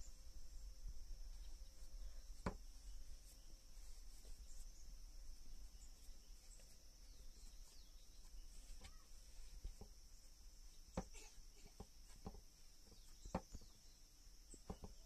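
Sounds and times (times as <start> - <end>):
insects droning: 0.0 - 15.0.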